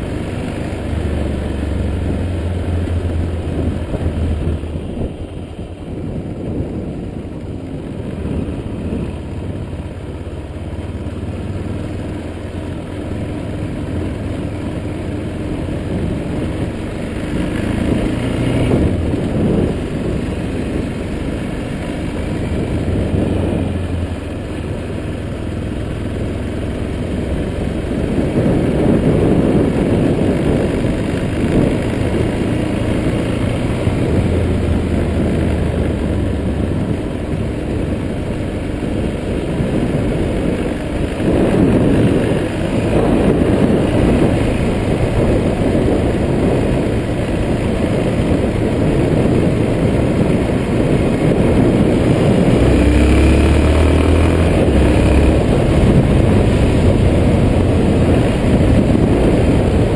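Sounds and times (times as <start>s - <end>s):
motorcycle engine running: 0.0s - 59.9s
wind rumble on microphone: 0.0s - 59.9s.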